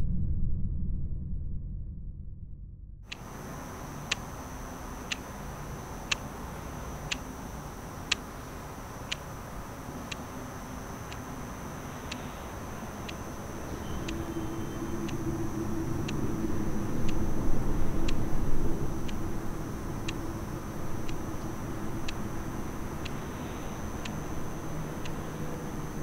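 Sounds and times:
low background rumble: 0:00.0 - 0:26.0
clock ticking: 0:03.1 - 0:15.2, 0:22.0 - 0:22.4
high-pitched whine: 0:03.1 - 0:26.0.

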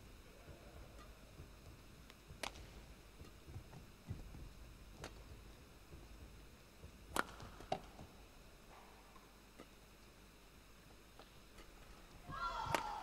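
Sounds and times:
footsteps thudding on court: 0:00.4 - 0:08.9
rackets smacking shuttlecock: 0:02.3 - 0:03.6, 0:07.0 - 0:08.1, 0:11.2 - 0:13.0.

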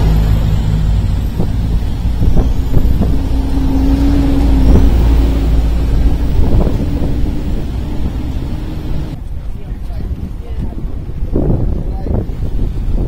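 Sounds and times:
motorbike and car engines: 0:00.0 - 0:11.3
low rumble: 0:00.0 - 0:12.5
steady engine hum: 0:00.0 - 0:13.0.

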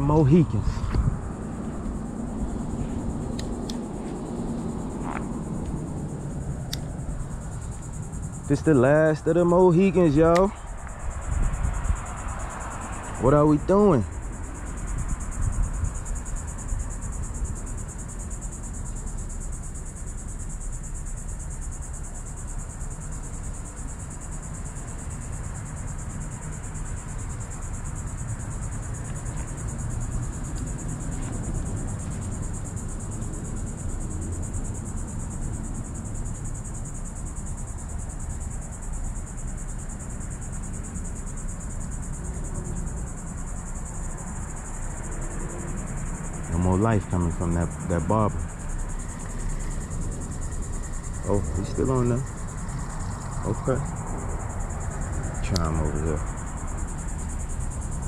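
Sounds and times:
low rumble: 0:00.0 - 0:08.8
insects chorus: 0:00.0 - 0:58.0.

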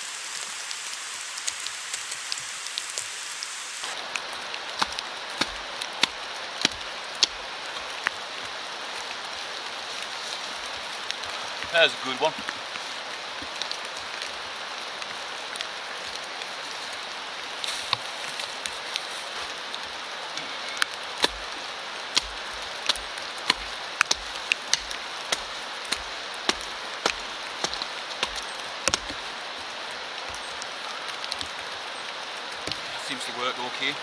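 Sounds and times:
steady rain hiss: 0:00.0 - 0:34.0.

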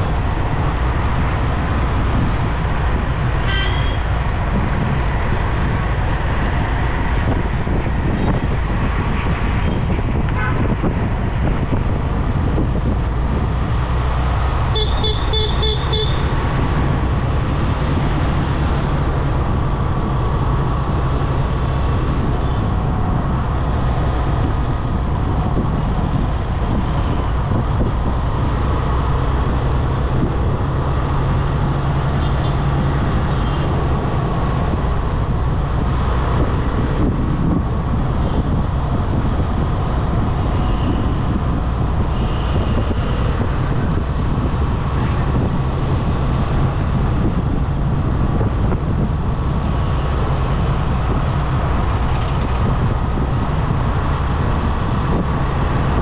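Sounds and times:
vehicle road and engine noise: 0:00.0 - 0:56.0
faint high tones from traffic: 0:43.8 - 0:44.6.

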